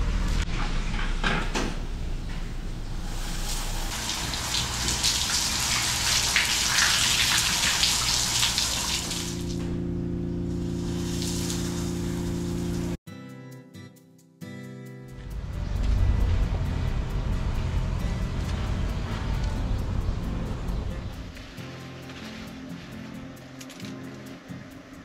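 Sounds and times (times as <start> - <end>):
shower water spraying on tiles: 3.0 - 9.6, 10.6 - 13.0
steady low hum: 6.9 - 13.0, 15.2 - 25.0.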